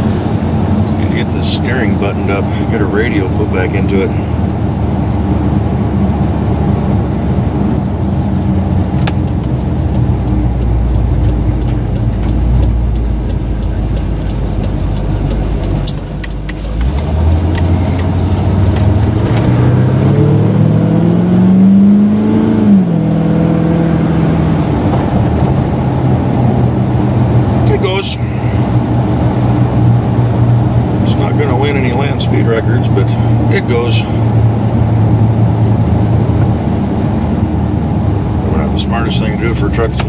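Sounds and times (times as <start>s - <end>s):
truck engine heard from cab: 0.0s - 40.0s
light ticking: 9.1s - 19.2s.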